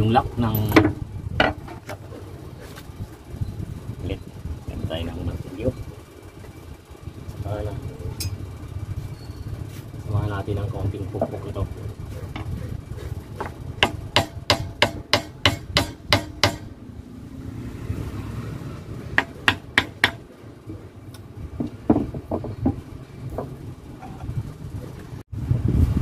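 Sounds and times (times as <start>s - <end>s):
hammer tapping metal: 13.4s - 16.7s, 19.2s - 20.3s.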